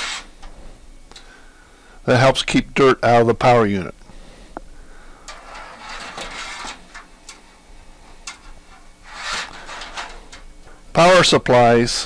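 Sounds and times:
rustling of cables: 4.5 - 10.9.

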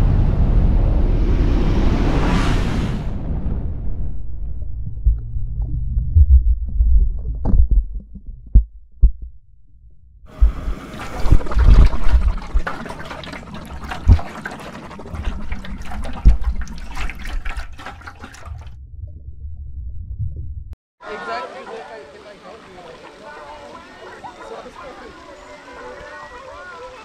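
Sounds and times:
muffled low thumps and gurgles: 3.1 - 20.8
water splashing and churning: 10.3 - 18.8.

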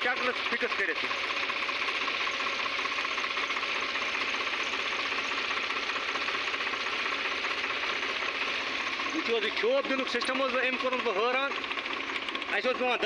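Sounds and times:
belt driven spray pump: 0.0 - 13.0
tractor engine running: 0.0 - 13.0.

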